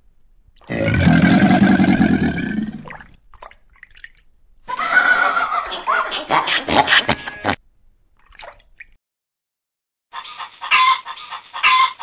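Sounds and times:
loud rough animal call: 0.7 - 2.8.

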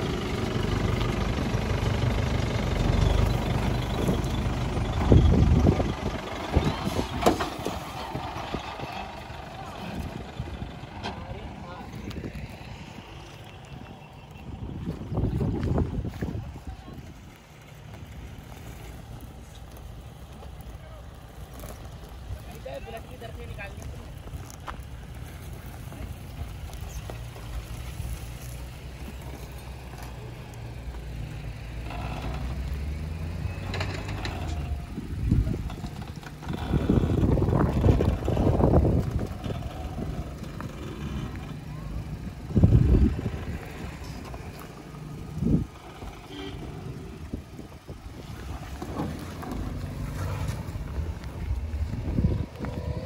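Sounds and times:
engine running steadily: 0.0 - 53.0
wind rumbling on microphone: 3.3 - 20.4, 34.2 - 53.0.

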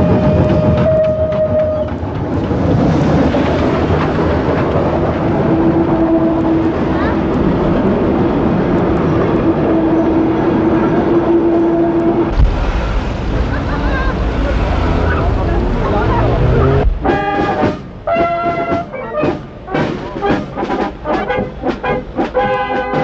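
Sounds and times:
steam train passing: 0.0 - 23.0.

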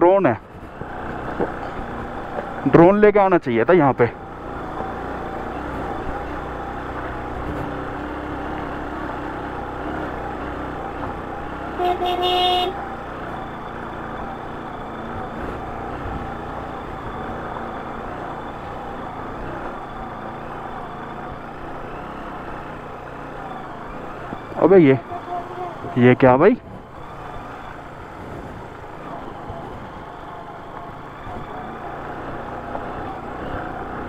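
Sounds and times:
wind and road noise: 0.0 - 34.0
motorcycle engine running: 0.4 - 34.0
horn beep: 11.6 - 12.8.

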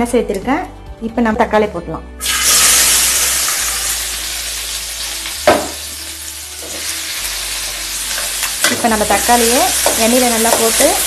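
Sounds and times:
tomatoes sizzling in hot oil: 2.2 - 11.0
sharp knock: 5.5 - 5.8.

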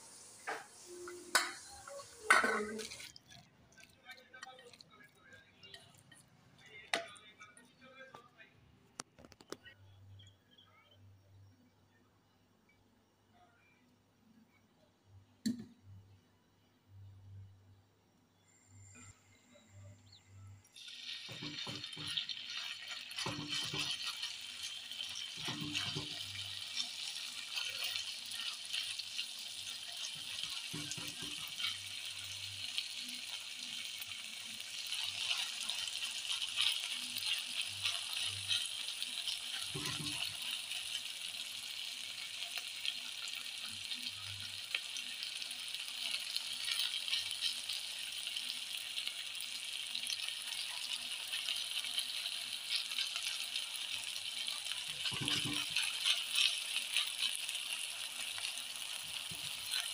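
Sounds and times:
meat sizzling in a pan: 0.0 - 3.4, 20.7 - 59.9.

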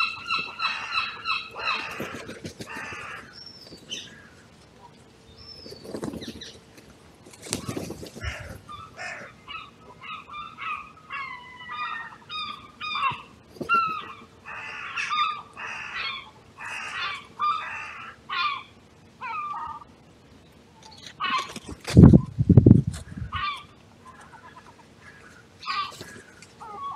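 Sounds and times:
crows cawing: 0.0 - 4.5, 8.1 - 19.9, 23.3 - 26.9.

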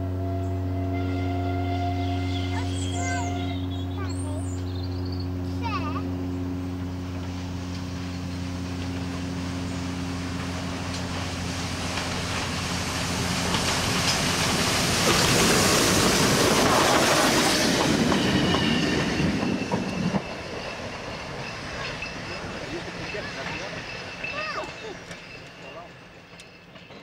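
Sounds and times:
train wheels clattering over rail joints: 7.0 - 27.0.

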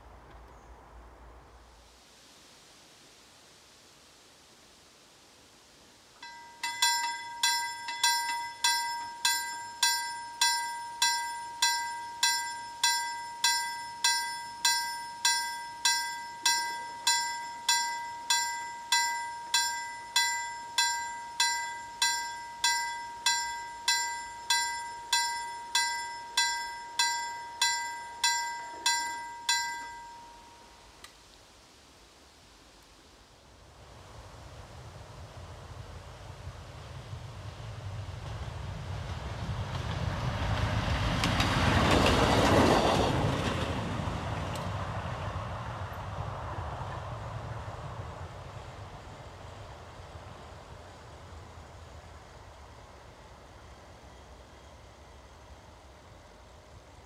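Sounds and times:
mechanical level crossing bell: 6.2 - 30.9.

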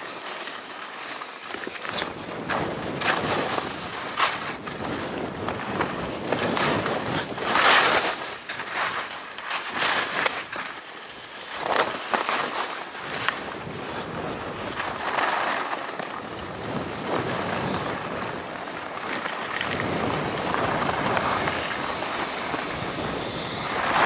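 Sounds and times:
skis scraping on snow: 0.0 - 24.0
wind rushing over microphone: 1.9 - 9.1, 13.0 - 15.2, 16.1 - 24.0.

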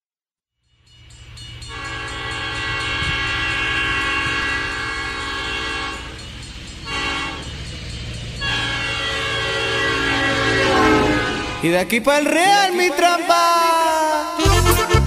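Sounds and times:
train low rumble: 0.8 - 12.5
train horn blasts: 1.7 - 6.2, 6.9 - 7.6, 8.4 - 12.0, 14.4 - 15.0.

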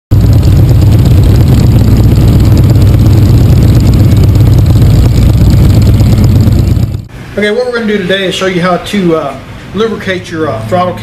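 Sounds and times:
motorcycle engine running: 0.1 - 7.1.

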